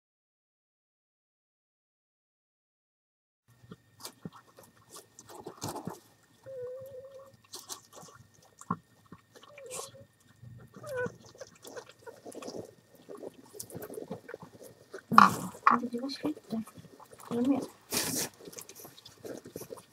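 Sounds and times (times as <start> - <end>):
dog chewing and crunching: 3.6 - 19.9
dog whining: 6.4 - 7.4, 9.4 - 10.1, 10.7 - 12.5.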